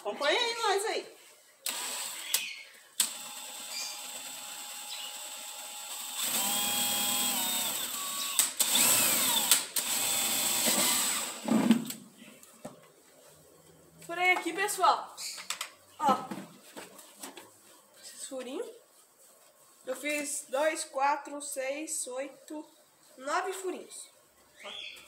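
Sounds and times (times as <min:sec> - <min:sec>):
cordless drill boring plastic: 0:01.6 - 0:11.5.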